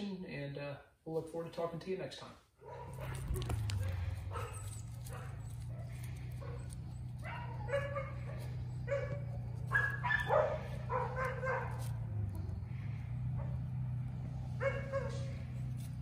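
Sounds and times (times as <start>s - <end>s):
puppy whining and yipping: 2.7s - 11.9s
steady low hum: 2.8s - 16.0s.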